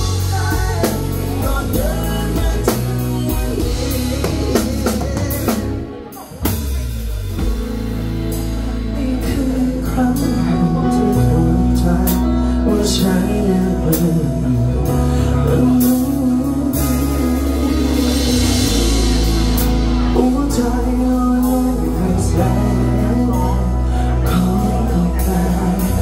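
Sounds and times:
man singing into a microphone: 0.0 - 6.6, 8.4 - 26.0
steady beat: 0.0 - 9.4
electric bass guitar: 0.0 - 26.0.

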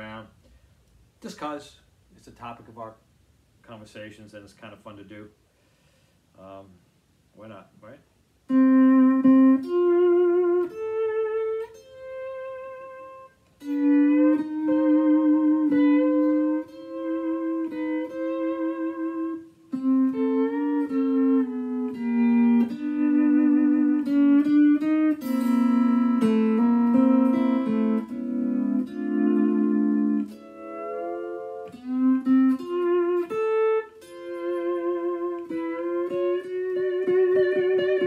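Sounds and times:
lap steel guitar playing: 8.5 - 38.0.

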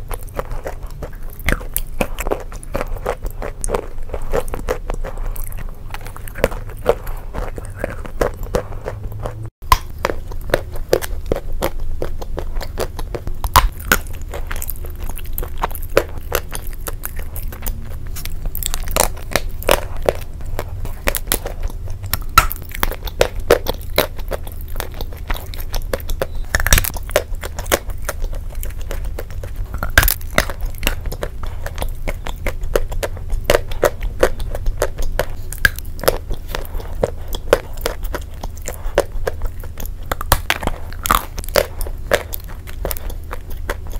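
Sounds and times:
biting and chewing chalk: 0.0 - 43.9.

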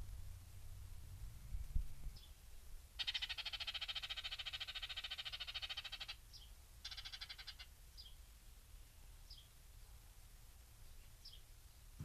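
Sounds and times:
short high falling calls: 3.0 - 6.2, 6.8 - 7.7.

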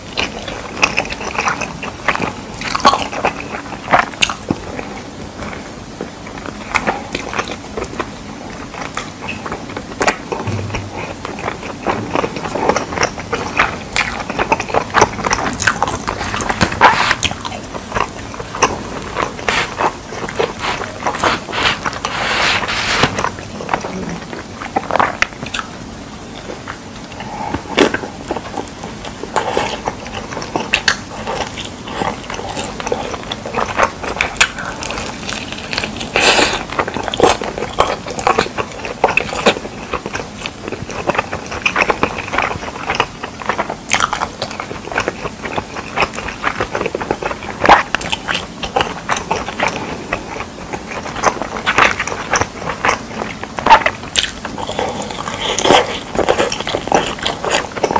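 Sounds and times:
person chewing crunchy food: 0.0 - 57.9.

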